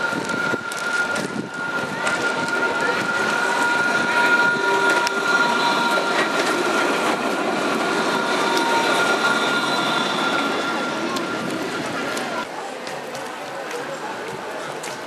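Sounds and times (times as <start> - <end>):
tram wheels whining on rails: 0.0 - 12.5.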